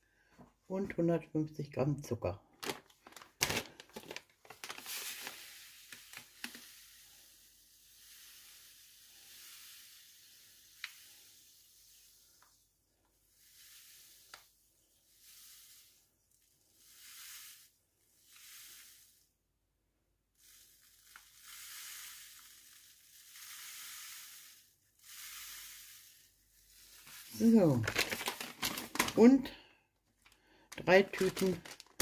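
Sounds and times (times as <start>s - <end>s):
bag being shaken: 2.6s - 6.6s, 26.8s - 29.4s, 30.8s - 32.0s
sugar pouring into a bowl: 4.5s - 19.3s, 20.4s - 29.3s, 30.8s - 32.0s.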